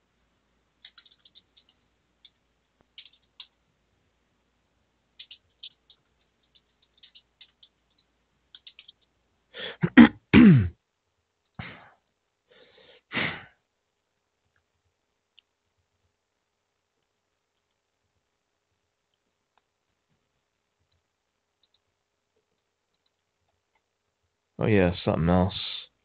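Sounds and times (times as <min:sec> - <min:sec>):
faint clicks: 0:00.8 - 0:03.6, 0:05.2 - 0:09.2, 0:17.0 - 0:17.8, 0:20.8 - 0:23.9
breathy bursts: 0:09.6 - 0:10.0
person sneezing: 0:09.6 - 0:10.7, 0:11.6 - 0:11.9, 0:13.1 - 0:13.5.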